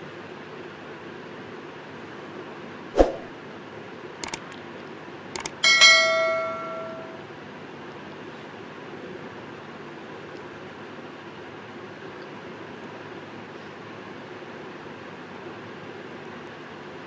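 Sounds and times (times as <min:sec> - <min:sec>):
mouse clicks: 0:04.2 - 0:04.6, 0:05.4 - 0:05.6
notification bell ringing: 0:05.4 - 0:07.2.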